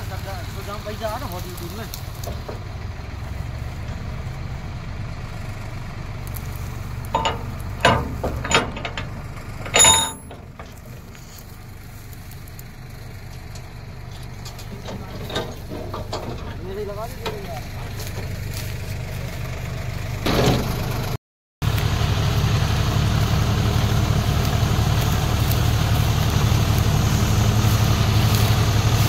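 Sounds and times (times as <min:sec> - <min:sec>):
tractor diesel engine idling: 0:00.0 - 0:29.0
metal clanks and knocks: 0:02.2 - 0:02.7, 0:06.4 - 0:11.3, 0:14.3 - 0:18.5, 0:20.2 - 0:20.8.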